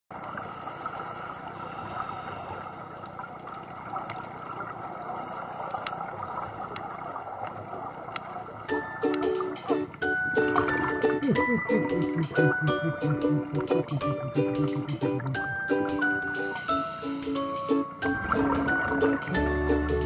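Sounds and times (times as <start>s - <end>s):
underwater noise: 0.1s - 20.0s.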